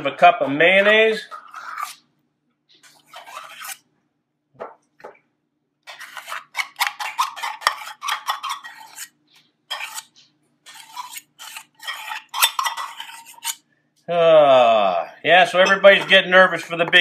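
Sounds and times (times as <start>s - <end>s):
metal spoon scraping metal cup: 2.8s - 3.8s, 5.9s - 13.6s, 15.6s - 16.2s.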